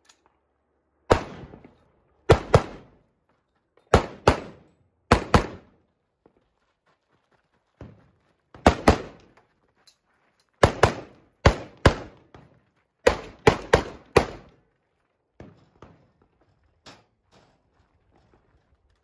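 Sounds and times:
gunshots: 1.1 - 3.0, 3.9 - 5.7, 8.6 - 9.2, 10.6 - 12.3, 13.0 - 14.5.

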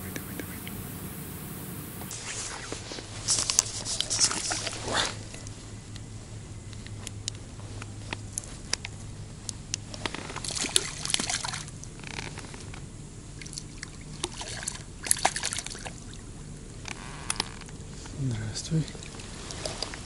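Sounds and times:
sharp clicks: 0.0 - 2.1
water splashing: 0.0 - 5.2, 10.4 - 11.8, 13.4 - 16.4, 18.8 - 20.0.

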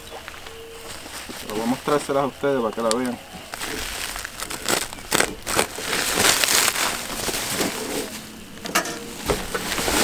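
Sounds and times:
plastic wrap crinkling: 2.8 - 8.3.

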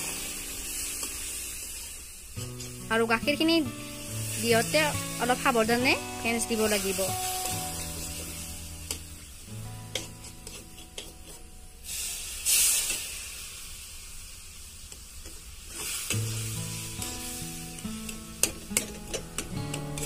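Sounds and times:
milk sizzling in hot pan: 0.0 - 20.0
metal spatula scraping and stirring: 2.4 - 2.9, 6.6 - 11.6, 15.7 - 17.4, 18.0 - 20.0
background music: 2.4 - 12.0, 16.2 - 20.0.

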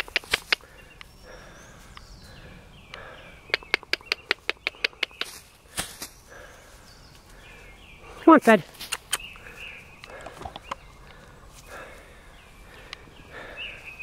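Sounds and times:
person clicking tongue: 0.0 - 0.6, 3.5 - 5.3, 8.8 - 9.3
birds chirping faintly: 0.0 - 14.0.

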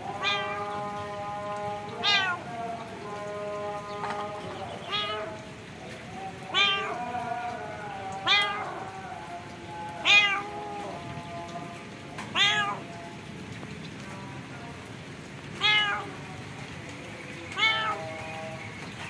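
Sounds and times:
cat meowing: 0.1 - 0.8, 1.9 - 2.4, 4.8 - 5.4, 6.5 - 7.1, 8.2 - 8.9, 10.0 - 10.8, 12.3 - 12.9, 15.6 - 16.2, 17.5 - 18.3.

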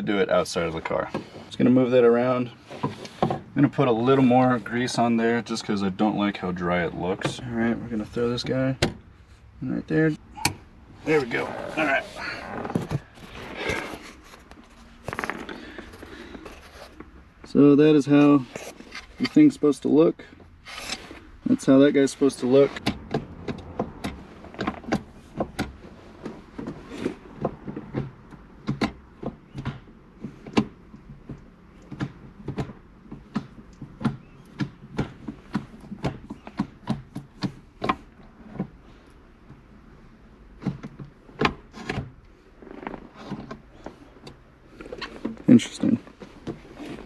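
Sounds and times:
gear shifter clicking and clunking: 10.2 - 19.4, 22.6 - 47.0.

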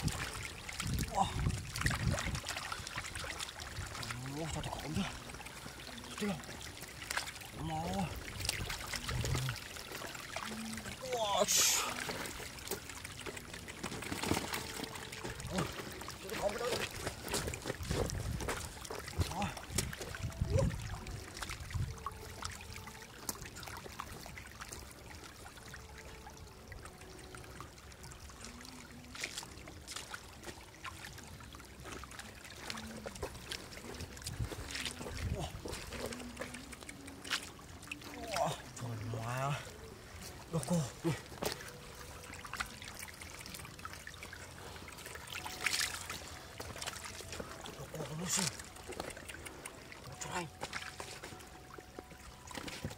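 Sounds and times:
shallow water splashing: 0.0 - 52.9.

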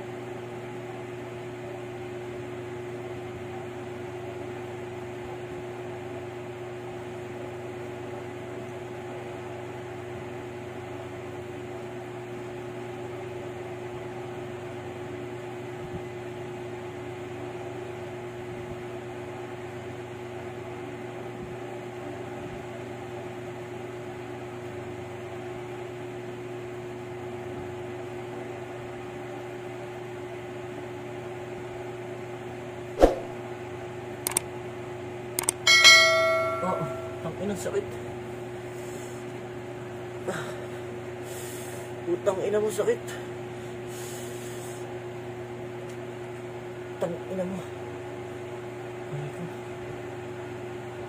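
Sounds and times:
steady machine hum: 32.8 - 51.0
sharp clicks: 34.3 - 34.5, 35.4 - 35.6.

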